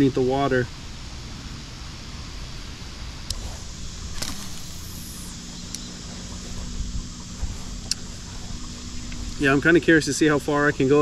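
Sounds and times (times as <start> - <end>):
fishing reel clicks: 4.1 - 5.9.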